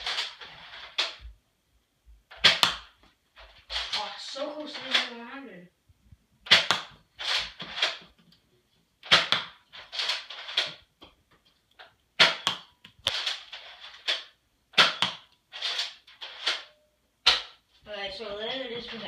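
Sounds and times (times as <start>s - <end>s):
toy blaster clacks and pops: 0.0s - 1.2s, 2.3s - 3.0s, 6.5s - 8.1s, 9.0s - 10.8s, 12.2s - 16.7s.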